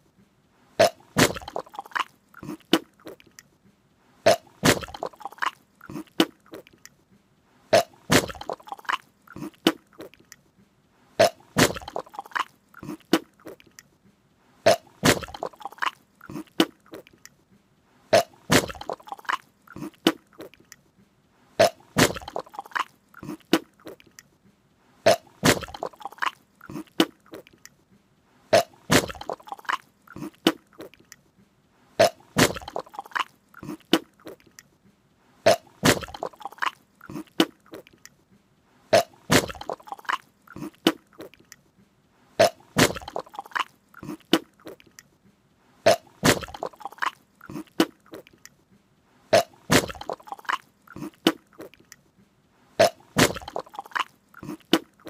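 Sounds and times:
wet mouth clicks and smacks: 0.8 - 3.6, 4.3 - 7.0, 7.8 - 10.5, 11.2 - 14.0, 14.7 - 17.4, 18.2 - 20.9, 21.6 - 24.4, 25.1 - 27.8, 28.6 - 31.3, 32.0 - 34.8, 35.5 - 38.2, 39.0 - 41.7, 42.4 - 45.2, 45.9 - 48.6, 49.4 - 52.1, 52.8 - 55.0.

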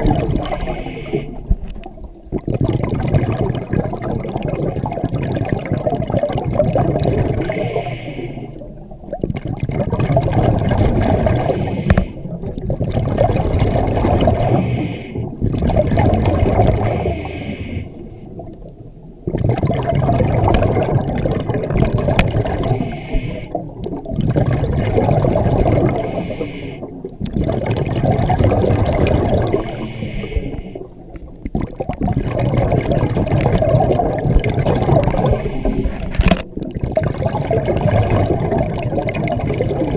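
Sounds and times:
exhaled bubbles rumbling: 0.0 - 39.9
regulator breathing underwater: 0.1 - 1.7, 7.2 - 8.8, 11.0 - 12.6, 14.2 - 15.4, 16.6 - 18.4, 22.5 - 23.8, 25.4 - 27.1, 29.1 - 31.0, 34.9 - 36.4.

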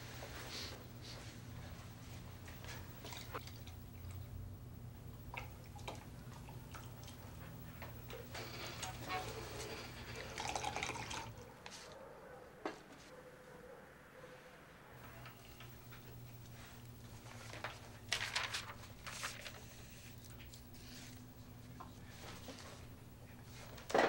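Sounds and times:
low steady hum: 0.0 - 11.7, 14.8 - 24.0
milk pouring into cup: 9.7 - 11.4.

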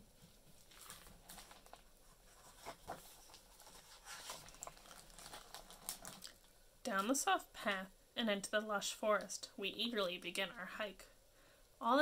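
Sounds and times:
book pages rustling: 0.2 - 6.4.

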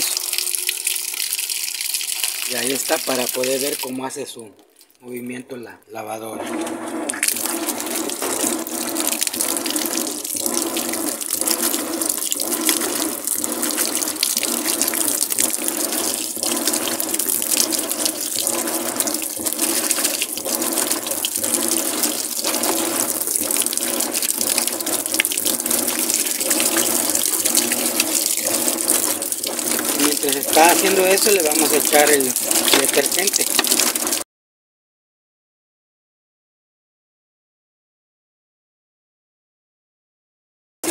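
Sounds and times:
washing machine agitator churning: 0.0 - 4.2, 6.2 - 34.2
water pouring into washer tub: 0.0 - 4.2, 6.3 - 34.2.

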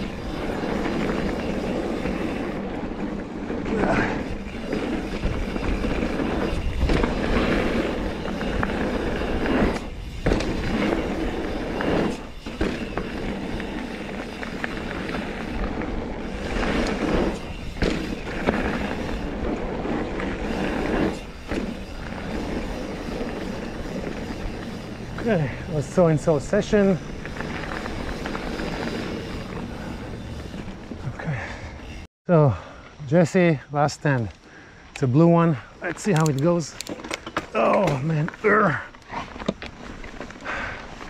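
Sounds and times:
bike clattering over bumps: 0.0 - 31.0
bike tyres on dirt: 0.0 - 41.0.

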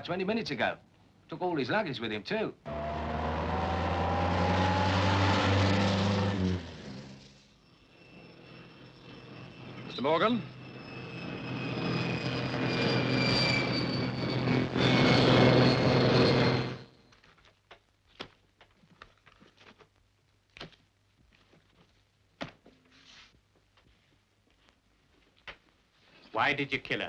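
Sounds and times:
propeller aircraft engines whining: 2.7 - 7.3, 9.2 - 16.8.

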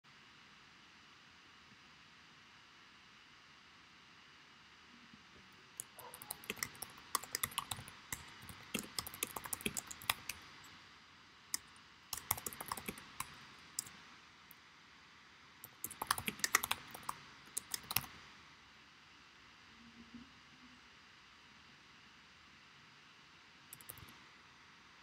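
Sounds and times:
keyboard typing: 5.8 - 10.7, 11.6 - 14.0, 15.6 - 18.2, 23.8 - 24.2.

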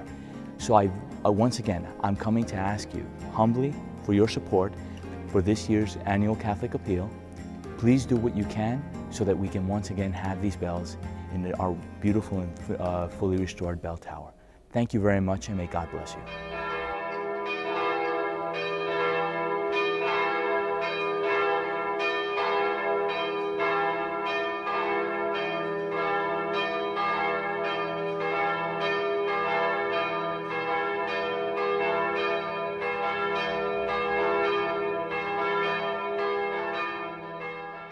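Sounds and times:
church bells ringing: 0.0 - 13.6, 15.4 - 37.9.

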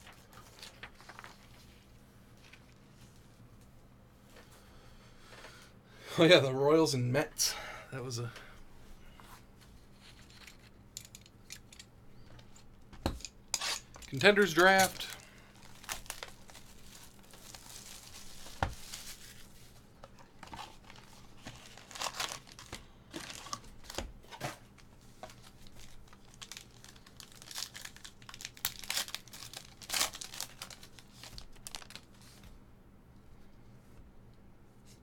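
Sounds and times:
foil wrappers crinkling and tearing: 0.0 - 1.9, 13.7 - 24.1, 24.7 - 32.4
cardboard box and card handling: 20.4 - 24.6.

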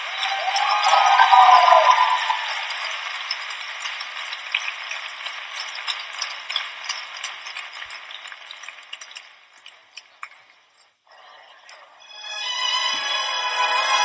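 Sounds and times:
crowd applauding and cheering: 0.0 - 9.4.

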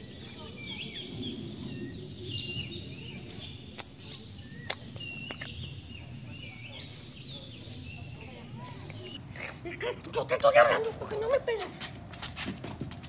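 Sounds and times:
birds chirping and whistling: 0.0 - 9.2
low outdoor rumble: 0.0 - 12.2.

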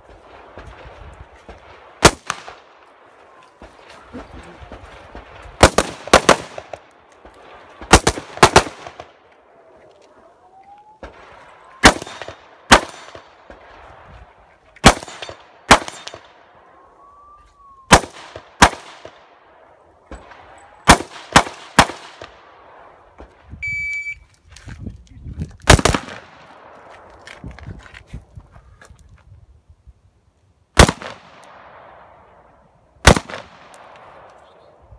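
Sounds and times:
rifle shots: 1.5 - 2.8, 5.1 - 6.9, 7.6 - 9.2, 11.0 - 13.7, 14.8 - 16.4, 17.9 - 19.2, 20.1 - 22.5, 25.6 - 26.8, 30.8 - 32.0, 33.0 - 34.3
shot timer beep: 23.6 - 24.2.

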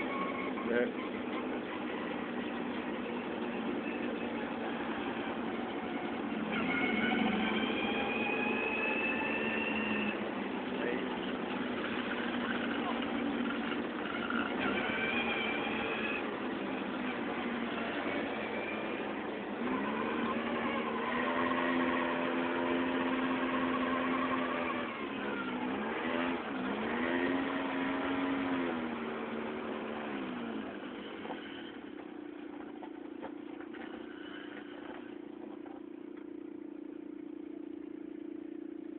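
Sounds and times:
atv engine running: 0.0 - 38.9
engine idling: 0.0 - 38.9.

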